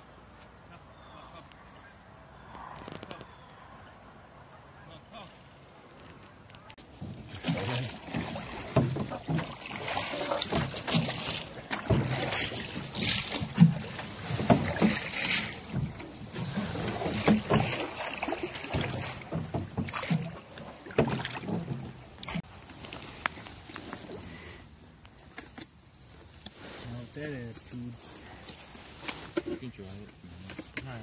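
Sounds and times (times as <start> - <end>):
knocks and thumps in metal boat: 6.9 - 22.4.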